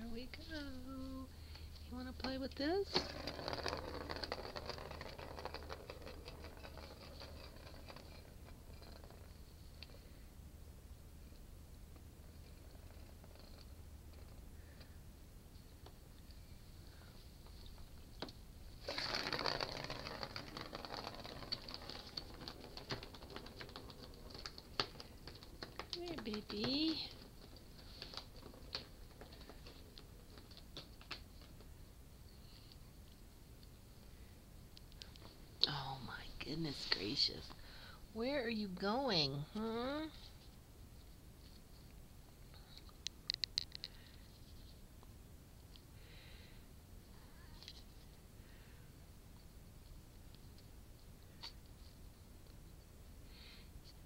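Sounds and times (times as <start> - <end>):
plastic ball rolling on plastic track: 0.0 - 10.6, 11.2 - 54.0
kittens' paws clicking and tapping: 17.4 - 31.9, 42.5 - 44.2.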